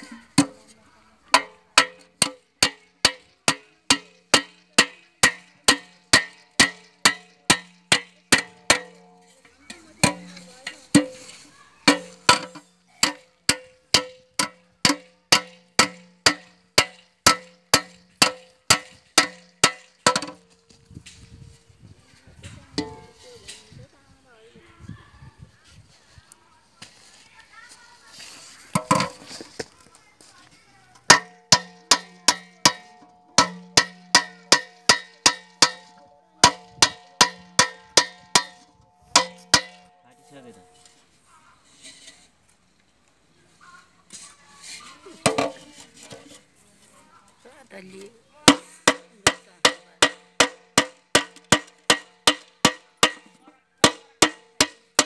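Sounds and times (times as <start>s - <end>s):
hammer striking metal pot: 1.3s - 9.4s, 10.0s - 11.3s, 11.9s - 20.5s, 31.1s - 40.9s, 48.5s - 55.0s.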